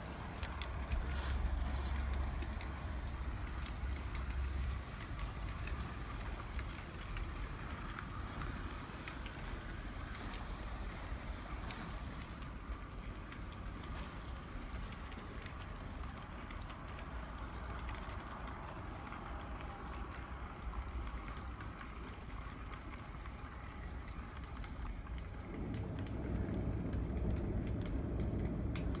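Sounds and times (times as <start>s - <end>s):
model train cars rolling: 0.0s - 29.0s
wheels clicking on rails: 0.0s - 29.0s
low rumble: 25.2s - 29.0s.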